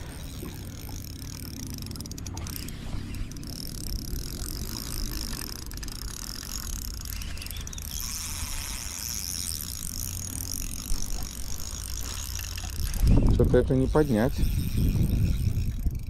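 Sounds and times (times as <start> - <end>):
constant low rumble: 0.0 - 16.0
fishing reel whirring: 0.0 - 16.0.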